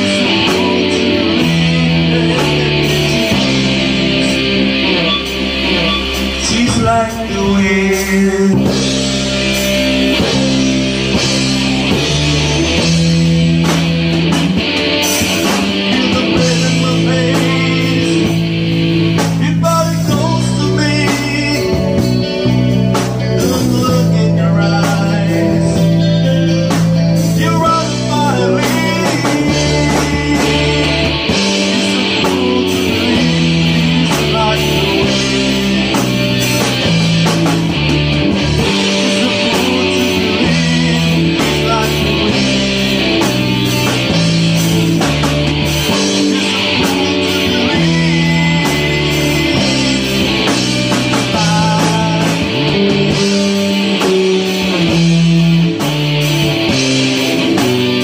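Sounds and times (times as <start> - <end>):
man singing into a microphone: 0.0 - 9.1, 15.4 - 18.5, 19.2 - 36.0, 38.6 - 43.1, 45.9 - 54.1
drums: 0.0 - 58.0
electric bass: 0.0 - 58.0
electric guitar: 0.0 - 58.0.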